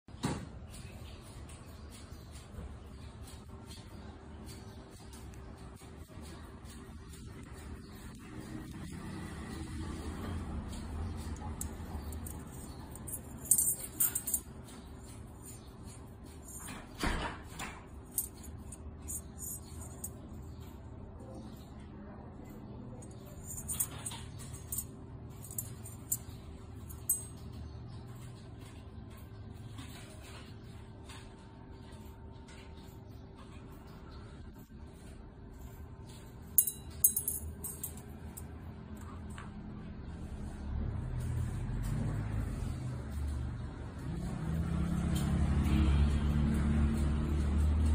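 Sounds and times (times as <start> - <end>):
sharp metallic clinks: 10.7 - 20.7, 22.9 - 28.7, 36.1 - 38.6.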